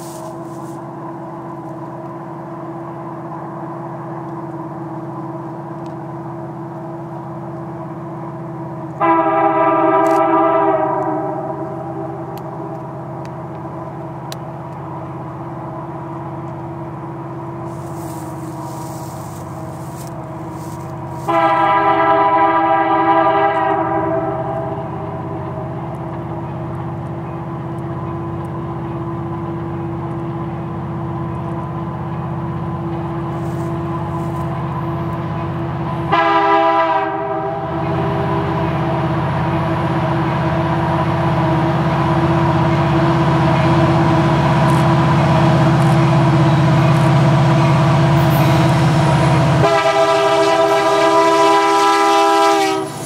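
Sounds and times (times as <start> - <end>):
diesel engine drone: 0.0 - 53.0
locomotive air horn blasts: 9.0 - 12.3, 17.7 - 25.3, 36.0 - 38.6, 49.6 - 53.0.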